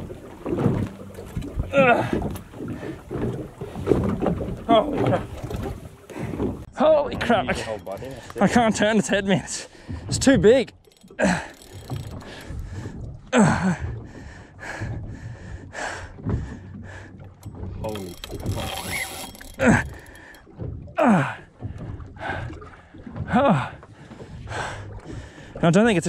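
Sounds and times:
man grunting with effort: 1.7 - 2.2
fishing reel whirring and clicking: 7.5 - 8.6, 10.7 - 12.6, 17.4 - 20.5.

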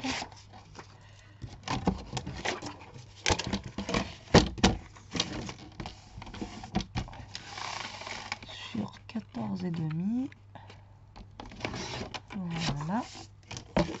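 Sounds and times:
paper rustling: 1.6 - 9.6.

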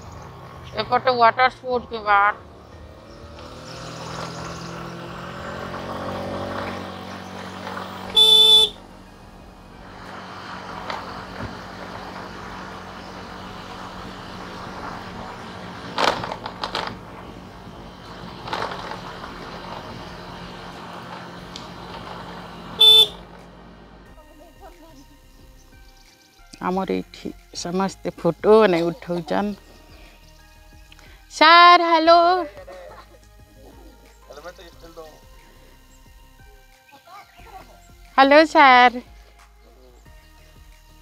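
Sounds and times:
engine running: 0.0 - 36.8
road noise: 0.0 - 41.0
vehicle horn honking: 8.0 - 9.0, 22.8 - 23.4.

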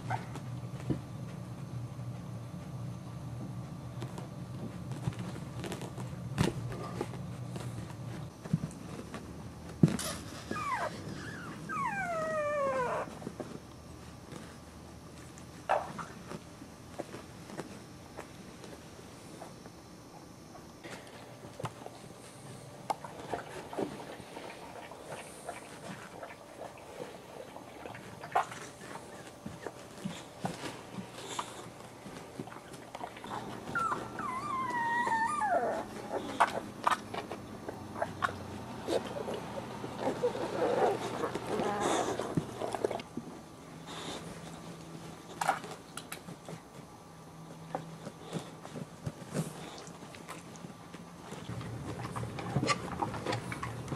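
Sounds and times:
faint clicks and scuffs: 2.1 - 11.1, 13.0 - 19.8
puppy whimpering: 10.4 - 13.2, 33.2 - 36.7, 40.0 - 42.8.

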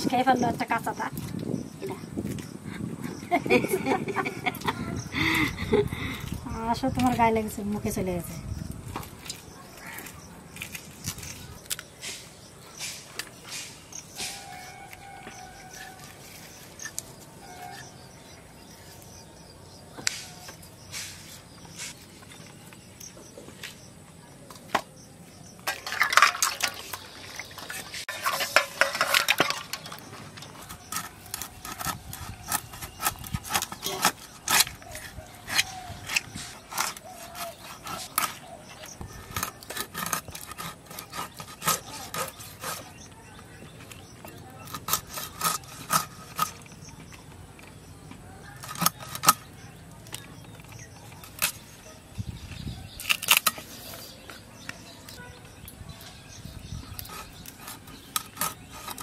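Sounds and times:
fish scraping against blade: 25.7 - 38.4, 39.1 - 43.1, 56.8 - 59.0
knocks of fish being cut: 27.4 - 47.2.

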